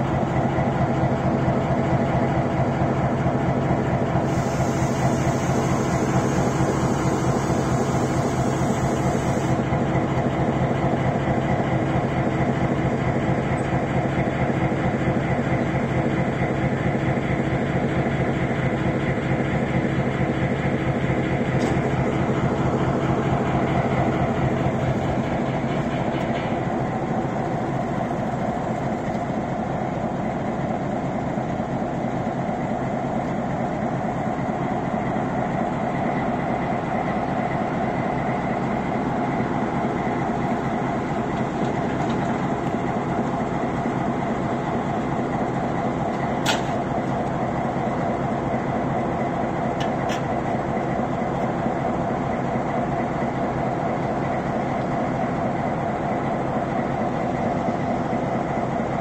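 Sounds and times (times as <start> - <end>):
diesel locomotive engine running: 0.0 - 59.0
sharp metallic click: 46.4 - 46.8.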